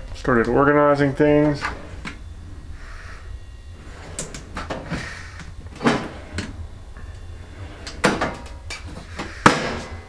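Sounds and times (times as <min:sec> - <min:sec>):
metal drawers sliding and clunking: 0:03.8 - 0:05.1, 0:05.7 - 0:06.6, 0:07.4 - 0:10.0.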